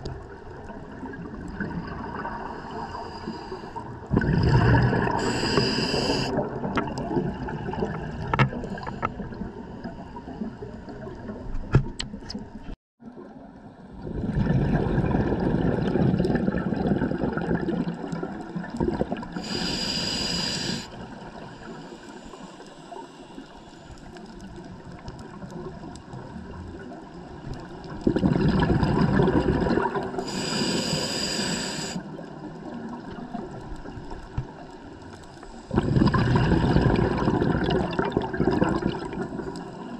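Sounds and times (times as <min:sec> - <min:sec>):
exhaled bubbles rushing: 0:00.0 - 0:03.0, 0:03.9 - 0:09.6, 0:13.3 - 0:19.5, 0:24.8 - 0:30.3, 0:35.7 - 0:39.8
hissing regulator inhalation: 0:05.1 - 0:06.4, 0:19.4 - 0:21.0, 0:30.2 - 0:32.1.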